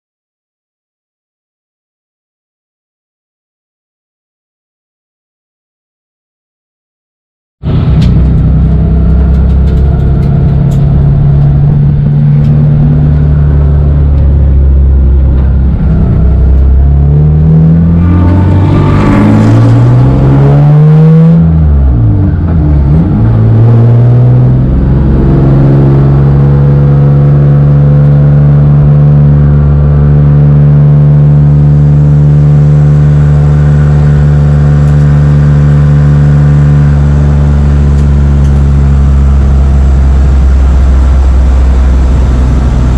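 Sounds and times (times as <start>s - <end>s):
race car engine: 7.6s - 42.9s.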